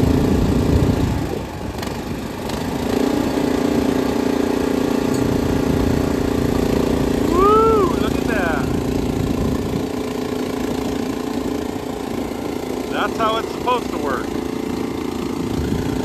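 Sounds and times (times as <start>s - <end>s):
small gas engine running: 0.0s - 16.0s.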